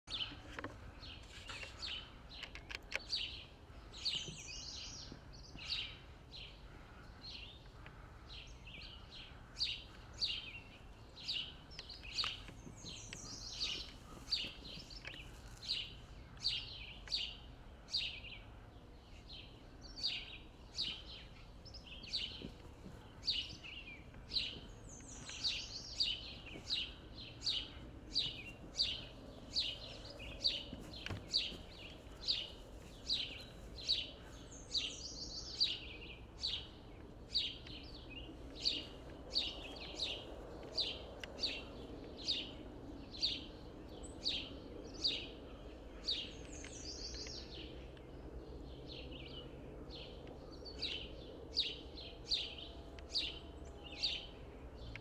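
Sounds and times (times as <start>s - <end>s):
bird chirping: 0.0s - 55.0s.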